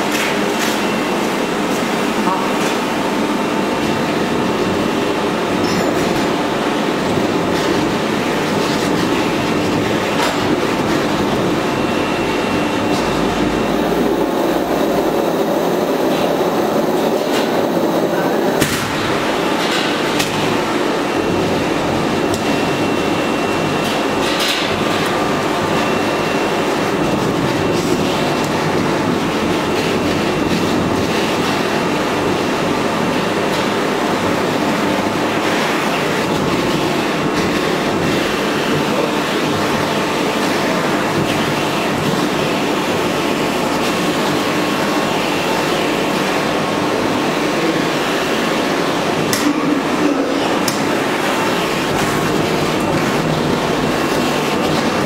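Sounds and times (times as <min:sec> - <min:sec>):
textile machinery din with clicks: 0:00.0 - 0:55.0.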